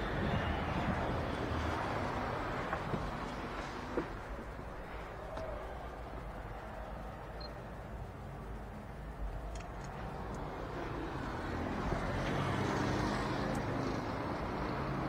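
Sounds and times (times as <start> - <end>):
street traffic rumble: 0.0 - 15.0
faint clicks: 3.6 - 10.9.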